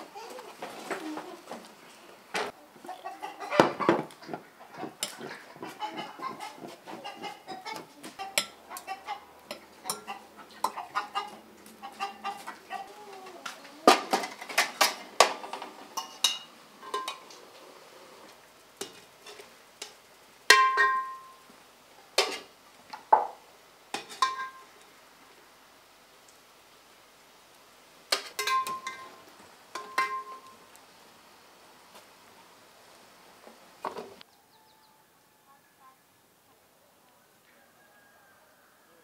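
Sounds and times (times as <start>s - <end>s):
chickens clucking: 0.0s - 18.3s
utensil clinking on metal basin: 16.0s - 17.2s, 20.5s - 21.3s, 24.0s - 24.6s, 28.3s - 29.2s, 29.8s - 30.5s.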